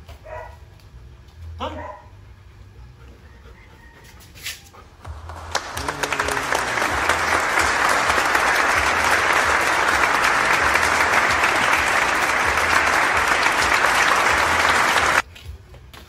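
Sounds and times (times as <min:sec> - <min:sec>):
low regular beat: 0:05.0 - 0:06.0
loud applause: 0:05.1 - 0:15.2.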